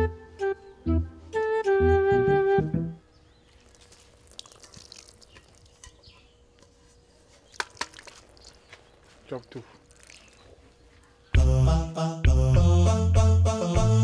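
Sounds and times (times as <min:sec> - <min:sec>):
flute-like music: 0:00.0 - 0:03.0
faint liquid dripping: 0:03.4 - 0:06.2, 0:07.5 - 0:10.8.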